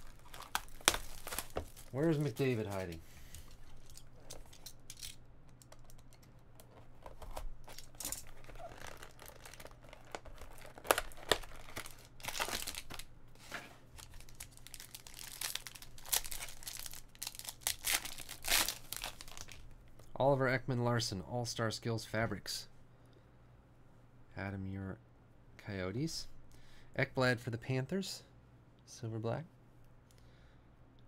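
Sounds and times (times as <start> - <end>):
foil pack tearing: 0.0 - 3.0, 7.2 - 13.0, 14.0 - 19.6
plastic wrapper crinkling: 0.0 - 13.1, 14.0 - 19.7.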